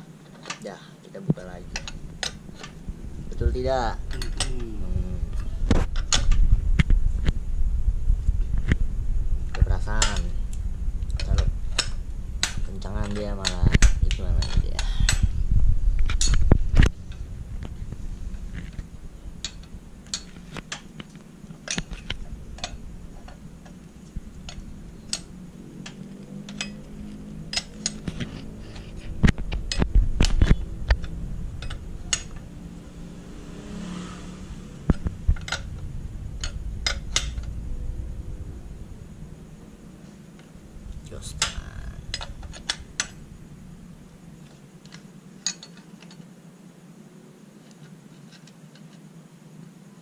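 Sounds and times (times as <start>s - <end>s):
heavy low thump: 1.4s - 19.1s
spanner clinking on metal: 1.7s - 4.8s, 9.8s - 10.4s, 11.1s - 15.3s, 16.1s - 16.4s, 19.4s - 20.9s, 21.6s - 28.9s, 29.5s - 32.5s, 34.9s - 35.8s, 36.4s - 37.6s, 41.2s - 43.2s, 44.9s - 46.2s.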